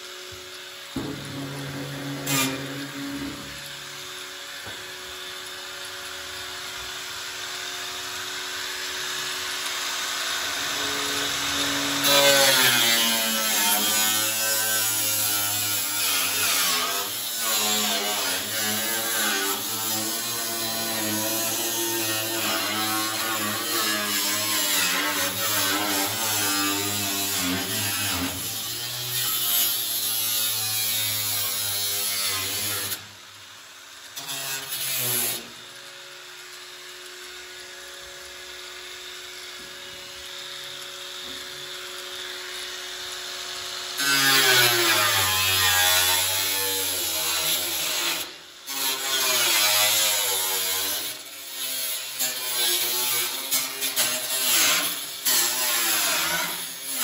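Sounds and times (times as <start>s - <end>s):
angle grinder cutting steel: 0.0s - 57.0s
steady tones: 0.8s - 4.5s.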